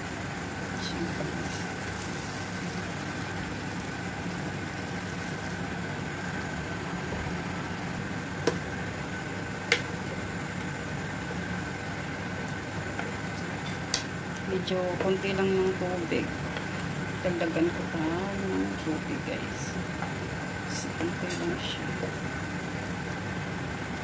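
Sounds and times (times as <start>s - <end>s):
kitchen hum: 0.0s - 24.0s
wooden spoon stirring: 16.4s - 17.1s.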